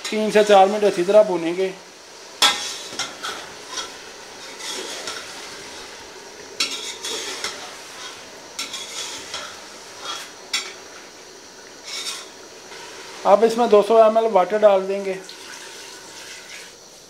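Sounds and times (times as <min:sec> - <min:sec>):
meat sizzling in a pot: 0:00.0 - 0:17.0
metal ladle scraping a pot: 0:02.4 - 0:05.9, 0:06.6 - 0:10.8, 0:11.8 - 0:13.0.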